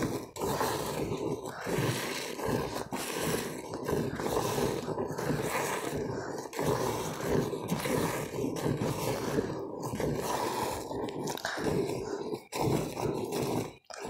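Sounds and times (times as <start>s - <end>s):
milk squirting into metal pail: 0.0s - 14.0s.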